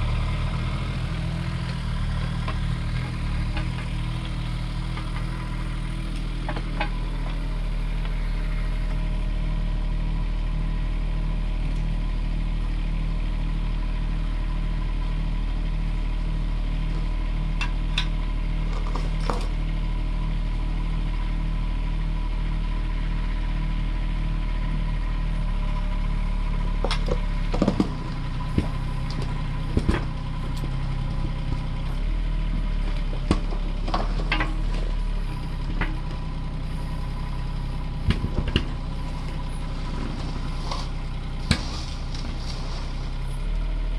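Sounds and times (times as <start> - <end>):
excavator diesel engine running: 0.0 - 43.9.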